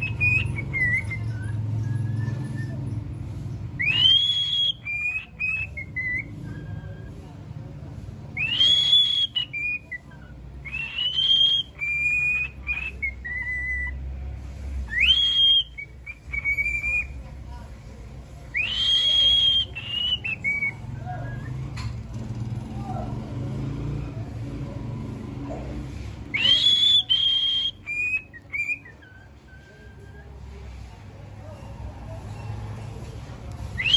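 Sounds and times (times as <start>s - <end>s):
cockatiel whistling song: 0.0s - 3.0s, 3.7s - 7.2s, 8.4s - 14.0s, 14.8s - 17.2s, 18.5s - 21.8s, 26.3s - 30.5s, 33.6s - 33.9s.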